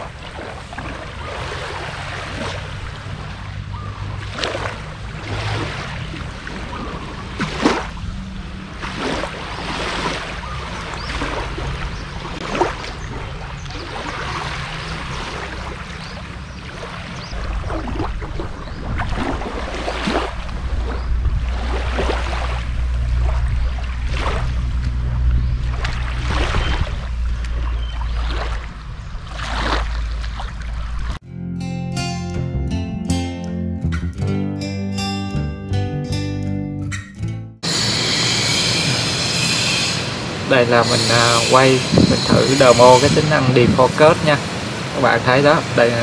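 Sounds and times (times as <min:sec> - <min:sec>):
small waves lapping on beach: 0:00.0 - 0:31.2, 0:40.1 - 0:46.0
low rumble: 0:17.3 - 0:31.2.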